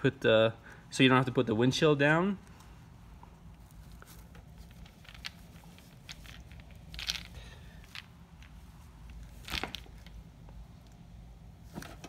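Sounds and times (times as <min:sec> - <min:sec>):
fabric rustling: 0:03.3 - 0:10.1.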